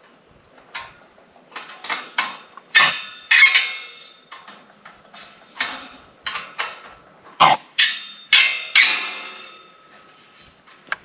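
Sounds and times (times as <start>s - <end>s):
wrench clanking on metal: 1.6s - 6.9s, 7.8s - 10.8s.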